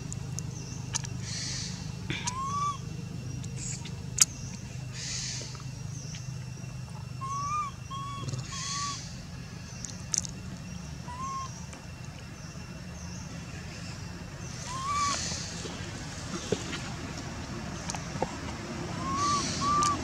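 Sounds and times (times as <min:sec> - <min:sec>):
steady low hum: 0:00.0 - 0:20.0
chirping animal calls: 0:00.9 - 0:05.4, 0:07.0 - 0:09.2, 0:10.8 - 0:11.7, 0:13.8 - 0:15.8, 0:18.7 - 0:20.0.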